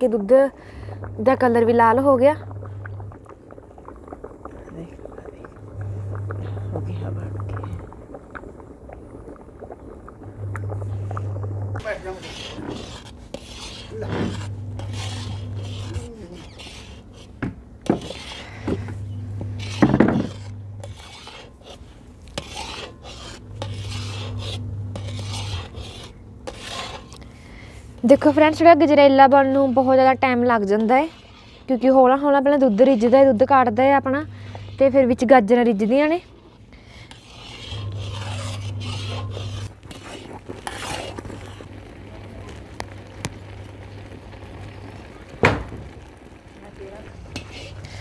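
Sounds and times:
low steady hum: 0.0s - 48.0s
metal scraper scraping pot bottom: 11.8s - 18.8s, 19.5s - 27.2s, 28.0s - 33.7s, 37.0s - 41.4s.

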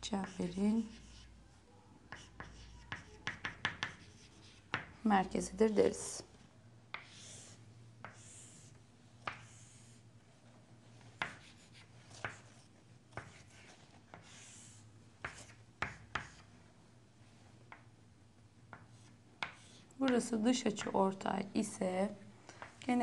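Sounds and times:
chalk tapping on board: 0.1s - 1.3s, 2.1s - 4.9s, 6.9s - 9.9s, 11.2s - 16.5s, 18.7s - 20.2s
chalk scraping on chalkboard: 0.1s - 1.4s, 2.1s - 4.8s, 7.0s - 10.0s, 11.0s - 16.5s, 18.8s - 19.9s.

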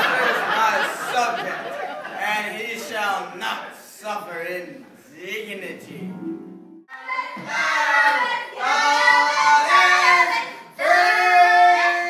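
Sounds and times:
young voice singing: 6.9s - 12.0s.

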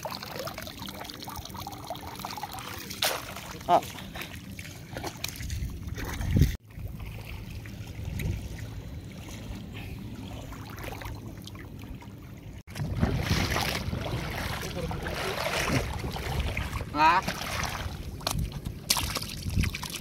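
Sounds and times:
seawater sloshing and gurgling: 0.0s - 20.0s.

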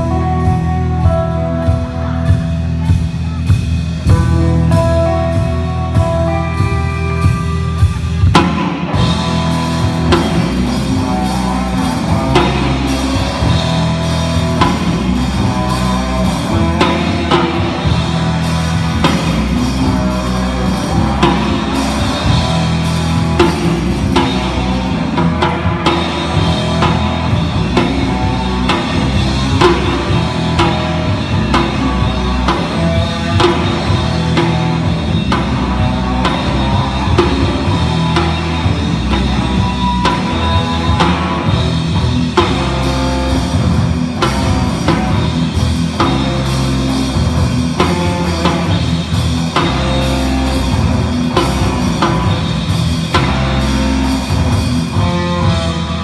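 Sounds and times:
rock band playing: 0.0s - 56.0s.

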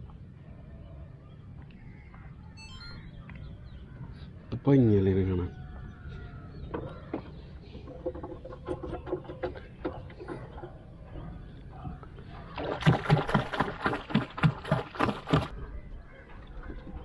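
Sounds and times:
hand splashing water: 12.4s - 15.5s.

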